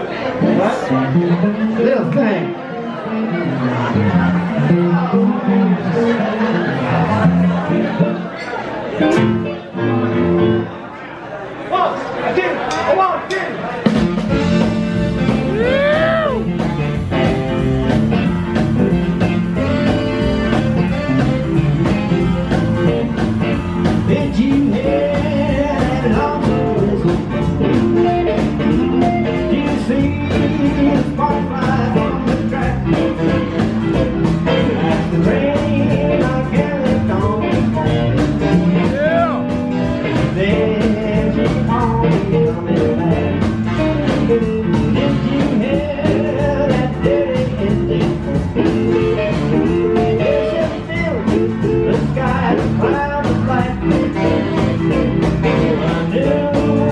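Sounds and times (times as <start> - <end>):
upright bass: 0.0 - 10.8, 13.8 - 56.9
piano: 0.0 - 11.1, 13.9 - 56.9
electric guitar with bending notes: 9.0 - 10.8, 13.8 - 56.9
drum kit beat: 13.8 - 56.9.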